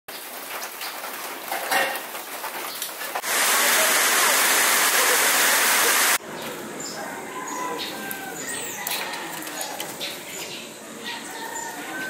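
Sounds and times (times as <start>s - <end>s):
heavy downpour hissing: 0.1s - 6.2s.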